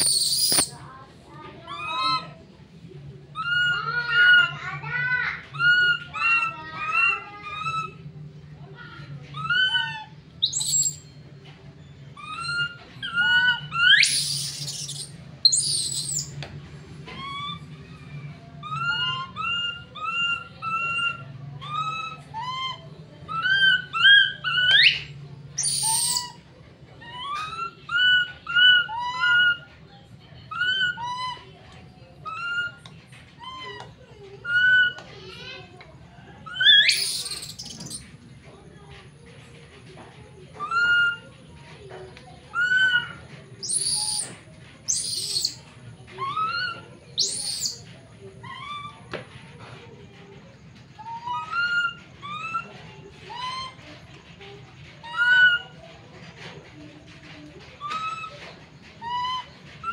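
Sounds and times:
baby monkey crying: 0.0s - 0.7s, 1.7s - 2.4s, 3.4s - 4.6s, 5.4s - 8.0s, 9.3s - 11.0s, 12.2s - 16.3s, 17.2s - 26.4s, 27.0s - 29.6s, 30.5s - 31.4s, 32.2s - 32.8s, 33.4s - 35.0s, 36.4s - 38.1s, 40.6s - 41.2s, 42.5s - 45.6s, 46.2s - 47.8s, 51.0s - 52.6s, 53.3s - 53.8s, 55.0s - 55.8s, 57.8s - 58.4s, 59.0s - 59.9s.

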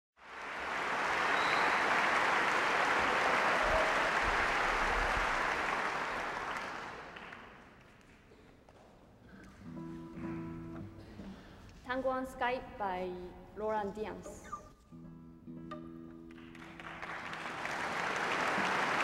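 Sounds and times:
audience applauding: 0.2s - 8.2s, 16.2s - 19.0s.

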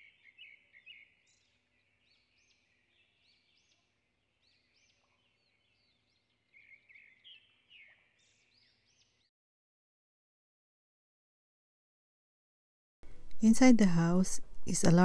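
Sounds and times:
small birds chirping: 0.0s - 9.3s.

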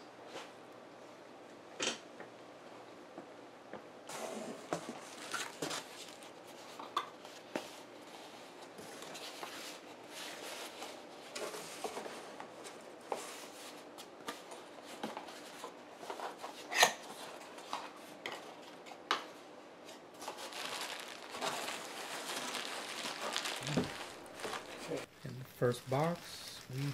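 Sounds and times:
plastic wrap crinkling: 4.8s - 6.4s, 20.2s - 26.9s.

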